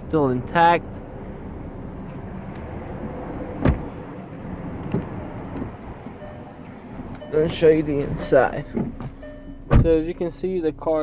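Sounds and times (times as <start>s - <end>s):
car door shutting: 3.6s - 4.0s, 4.8s - 5.8s, 7.2s - 10.0s.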